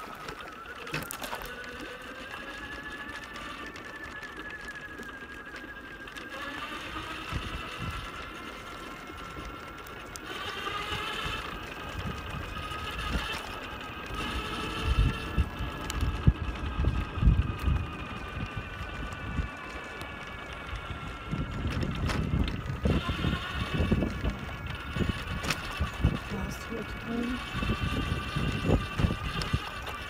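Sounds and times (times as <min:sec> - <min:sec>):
electric motor whining: 0:00.0 - 0:30.0
low rumbling thumps: 0:20.5 - 0:26.9.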